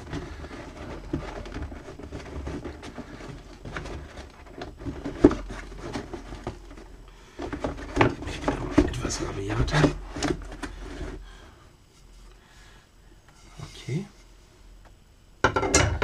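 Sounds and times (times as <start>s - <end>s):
cardboard scraping and rustling: 0.0s - 12.2s.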